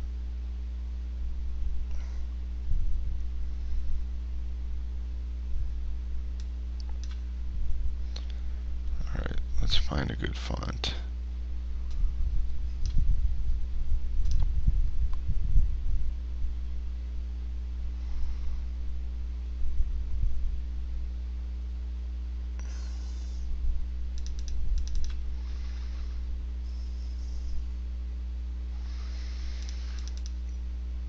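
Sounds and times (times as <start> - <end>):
steady electrical hum: 0.0 - 31.0
computer mouse clicks: 6.4 - 7.2, 12.8 - 13.0, 14.2 - 14.5, 24.1 - 25.2, 29.5 - 30.6.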